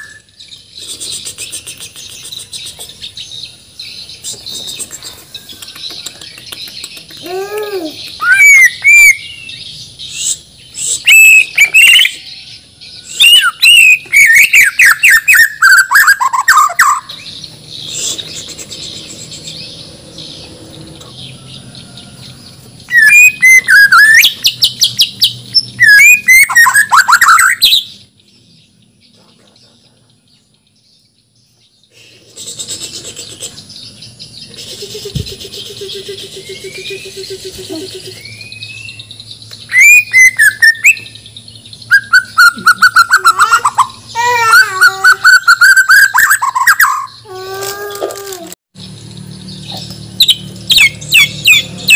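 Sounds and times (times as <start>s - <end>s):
songbird singing whistled phrases: 0.0s - 3.1s, 4.1s - 12.4s, 13.0s - 19.6s, 22.9s - 28.0s, 32.6s - 47.3s, 49.4s - 51.9s.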